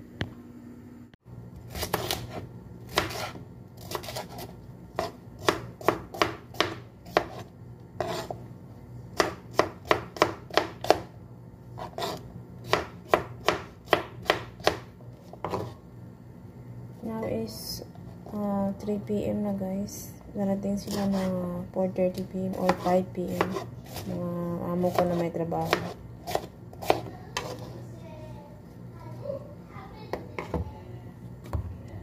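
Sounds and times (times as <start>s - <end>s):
knife chopping on wooden board: 1.7s - 8.4s, 9.2s - 11.1s, 11.8s - 15.8s, 22.6s - 24.2s, 24.8s - 27.7s.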